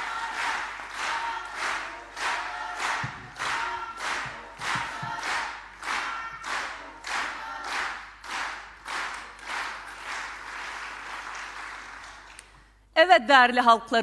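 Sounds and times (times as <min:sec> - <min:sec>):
voices chanting: 0:00.0 - 0:08.5
loose applause: 0:00.0 - 0:12.6
crowd clapping in unison: 0:00.0 - 0:12.8.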